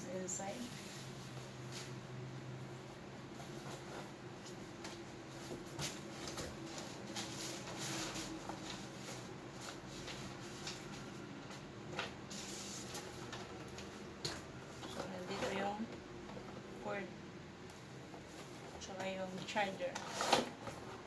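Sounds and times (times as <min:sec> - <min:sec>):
cardboard rustling and scraping: 0:03.2 - 0:14.0, 0:18.2 - 0:21.0.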